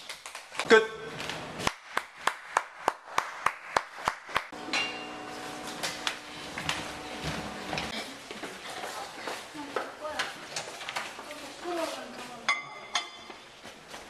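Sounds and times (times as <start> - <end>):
hands clapping: 1.6 - 4.6.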